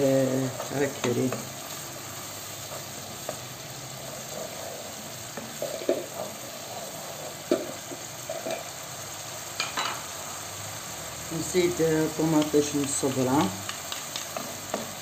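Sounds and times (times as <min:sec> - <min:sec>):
sauce sizzling in a pan: 0:00.0 - 0:15.0
spatula scraping a pan: 0:02.6 - 0:08.8.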